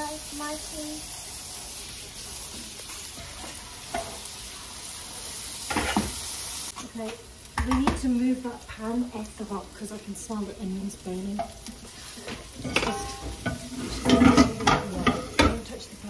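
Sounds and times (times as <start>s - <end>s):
onions sizzling in a wok: 0.0s - 16.0s
steady hiss: 0.0s - 16.0s
wooden spoon knocking against pan: 7.6s - 8.0s.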